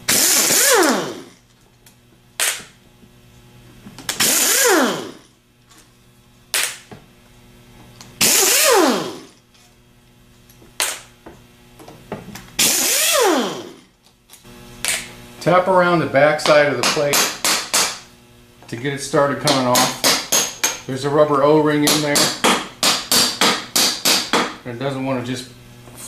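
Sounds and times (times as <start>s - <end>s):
power driver whirring: 0.0s - 1.4s, 4.0s - 5.2s, 8.1s - 9.4s, 12.6s - 13.8s.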